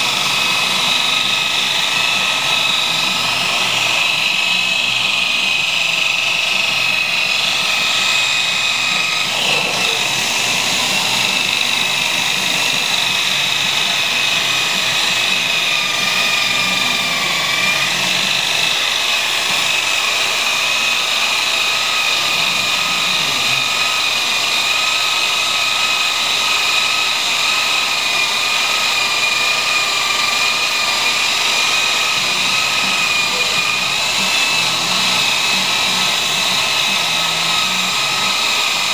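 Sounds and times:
rotary polisher whining on metal: 0.0s - 38.9s.

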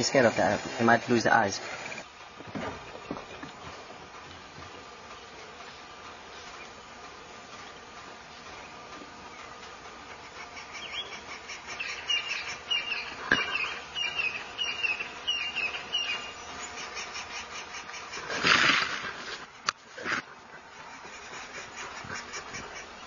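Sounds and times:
insect chorus: 0.0s - 19.2s
loud rustling burst: 17.9s - 20.3s.

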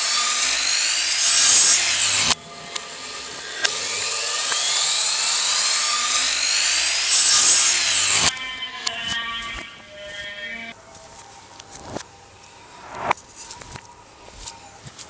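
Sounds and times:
miter saw cutting wood: 0.0s - 10.8s.

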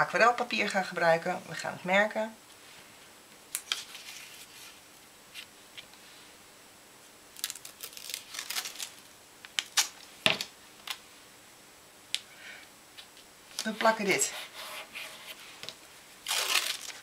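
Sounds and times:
tape pulled off roll crackling: 16.2s - 17.0s.

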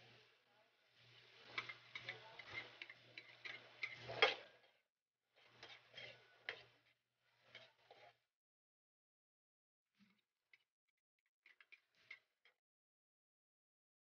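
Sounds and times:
kitchen utensils clicking and knocking: 1.4s - 4.6s.

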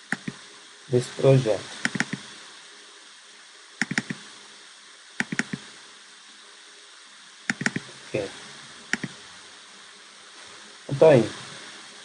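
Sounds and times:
faint steady hiss: 0.0s - 12.0s
mouse button double-clicking: 1.9s - 2.2s, 3.8s - 4.2s, 5.2s - 5.6s, 7.5s - 7.8s, 8.9s - 9.2s.

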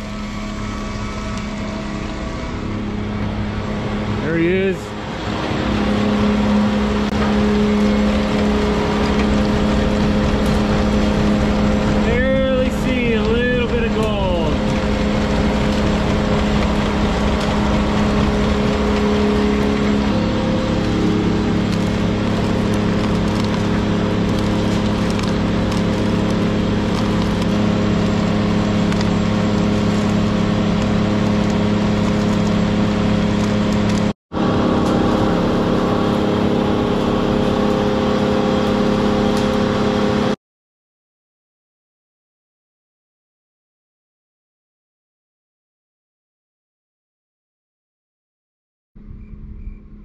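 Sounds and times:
motor hum: 0.0s - 40.4s
clatter of crushed ore on conveyor: 7.2s - 34.1s.

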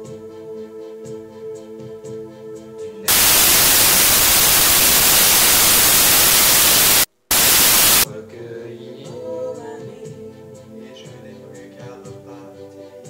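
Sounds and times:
loud white-noise static: 3.1s - 8.1s.

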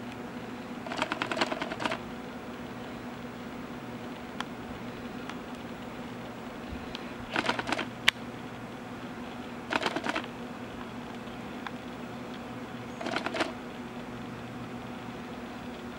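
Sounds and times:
steady low hum: 0.0s - 15.9s
squirrel crunching seeds: 0.8s - 2.0s, 9.7s - 13.6s.

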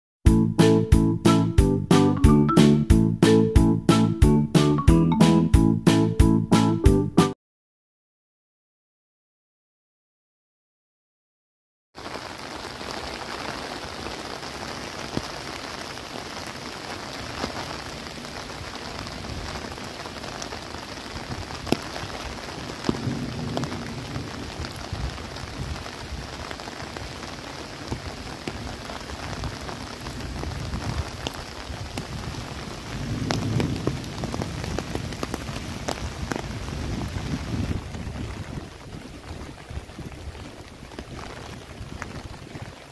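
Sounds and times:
close raindrops ticking: 12.0s - 42.9s
rain falling on trees: 12.0s - 42.9s
distant thunder rumbling: 22.8s - 25.8s, 31.9s - 40.3s.

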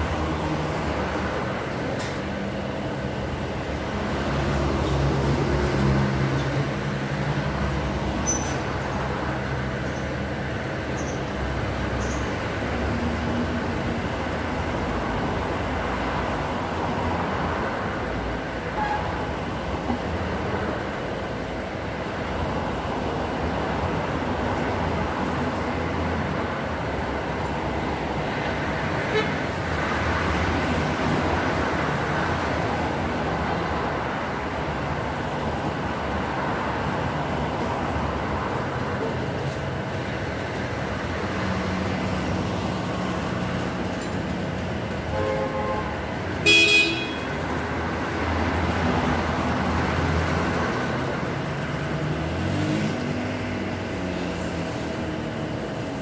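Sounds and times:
road traffic rumble: 0.0s - 56.0s.

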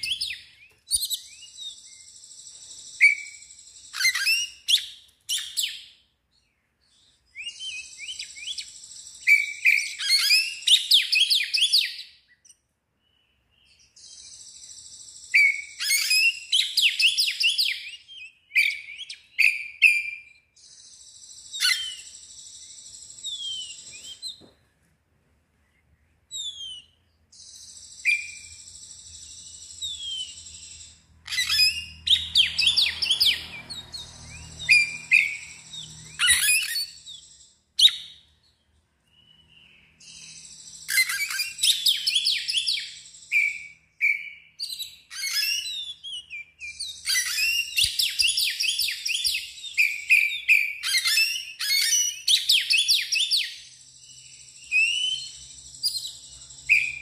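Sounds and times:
songbird singing: 0.0s - 24.6s, 25.6s - 57.0s.

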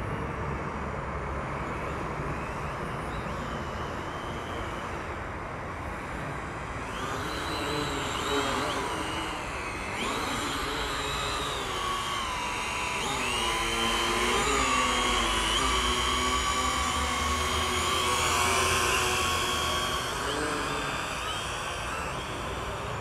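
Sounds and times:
drone propellers whining: 1.5s - 23.0s.

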